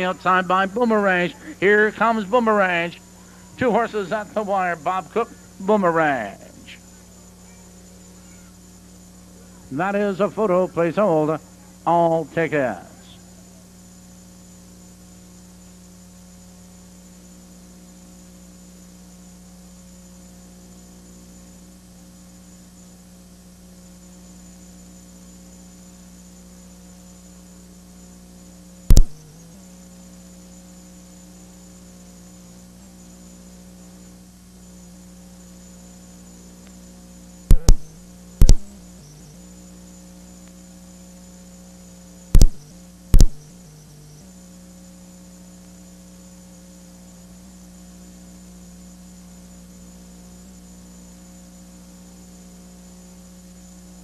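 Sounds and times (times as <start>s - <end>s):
electrical mains hum: 0.0s - 54.0s
sharp loud clicks: 28.9s - 29.4s, 37.5s - 39.3s, 42.3s - 43.6s.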